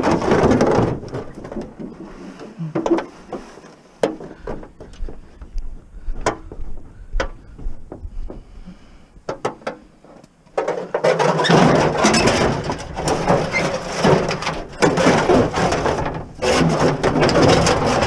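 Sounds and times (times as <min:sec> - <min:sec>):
metal gutters clattering: 0:00.0 - 0:05.2, 0:10.5 - 0:18.0.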